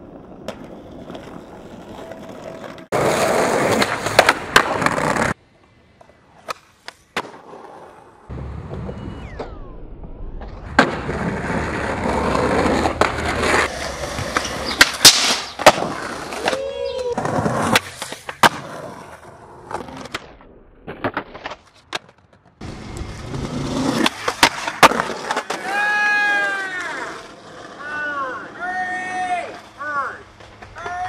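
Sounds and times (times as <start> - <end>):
skateboard popping and landing clacks: 0.0 - 5.4, 6.0 - 8.1, 10.6 - 23.0, 23.6 - 25.8
skateboard wheels rolling on pavement: 0.0 - 31.0.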